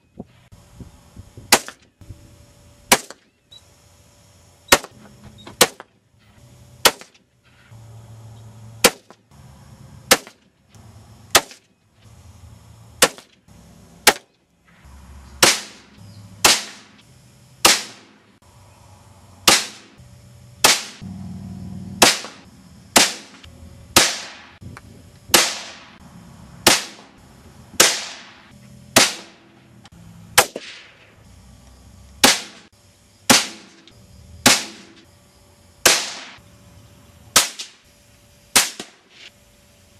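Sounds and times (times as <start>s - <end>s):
rifle shots: 10.1s - 10.4s, 13.0s - 13.3s, 15.4s - 17.0s, 17.6s - 18.2s, 19.5s - 20.0s, 20.6s - 21.0s, 22.0s - 22.4s, 23.0s - 23.4s, 24.0s - 24.5s, 25.3s - 26.0s, 26.6s - 27.1s, 27.8s - 28.4s, 29.0s - 29.4s, 30.4s - 31.0s, 32.2s - 32.7s, 35.9s - 36.4s.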